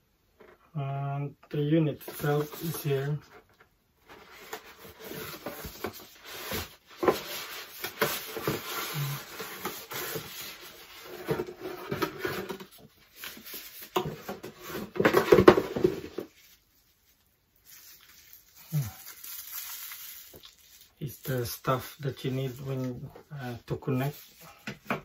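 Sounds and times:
cardboard and plastic rustling: 0:02.0 - 0:25.0.

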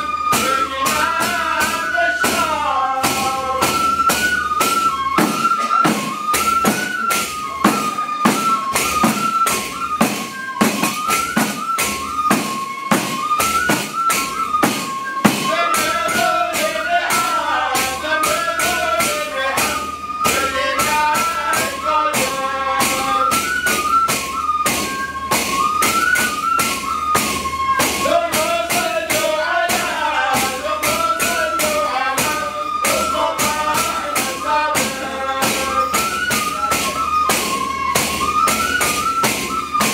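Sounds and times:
frame drums: 0:00.0 - 0:39.9
men's voices chanting: 0:15.4 - 0:23.2, 0:28.0 - 0:35.9.

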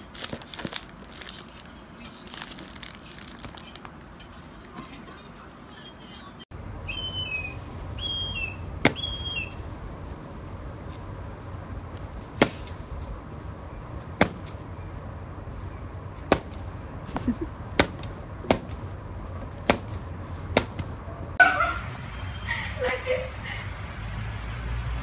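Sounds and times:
high falling bird chirps: 0:06.8 - 0:09.7.

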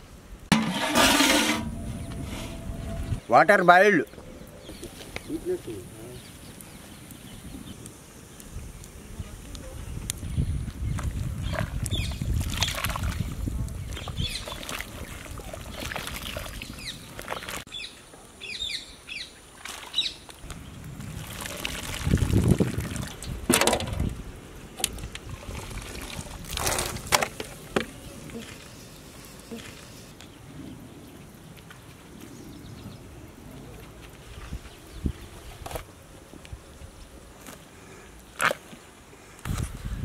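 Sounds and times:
water splashing in a pot: 0:21.0 - 0:23.4.

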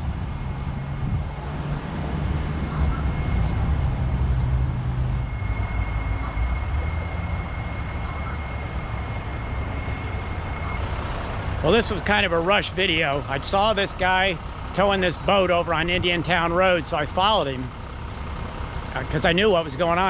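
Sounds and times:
diesel truck engine rumbling: 0:00.0 - 0:20.0
thin high tone: 0:05.0 - 0:13.2.

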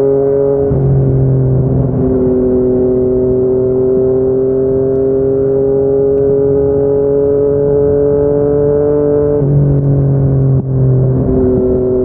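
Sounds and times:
motorcycle engine revving up: 0:02.2 - 0:09.4.

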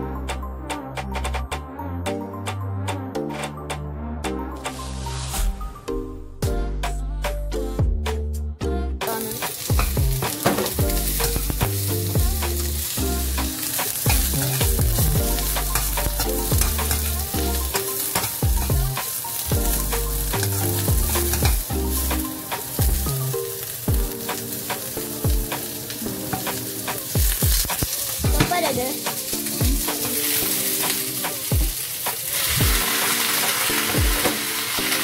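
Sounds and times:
background music with bass: 0:00.0 - 0:31.8, 0:32.4 - 0:35.0
onion sizzling in oil: 0:09.1 - 0:35.0.

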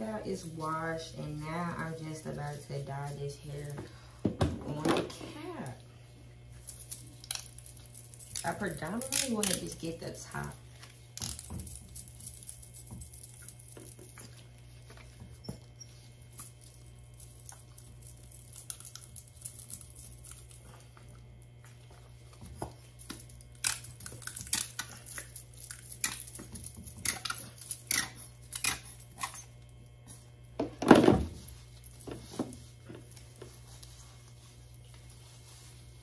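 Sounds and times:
low steady hum: 0:00.0 - 0:36.0
gloved hands squishing hair dye: 0:06.4 - 0:14.9.

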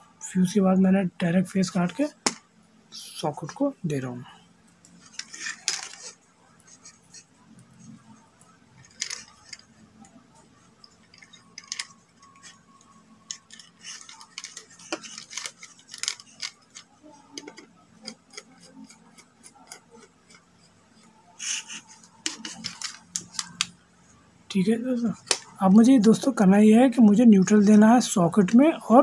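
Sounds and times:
faint steady hum: 0:00.0 - 0:29.0
wire and screw clicks: 0:10.8 - 0:20.5.

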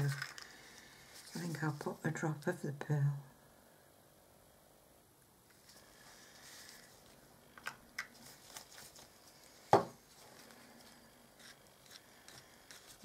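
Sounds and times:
sharp knock on table: 0:09.7 - 0:10.0.

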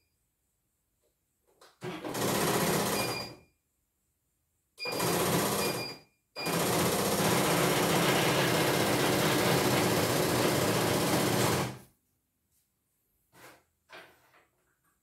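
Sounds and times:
embroidery machine needle running: 0:06.5 - 0:11.8.

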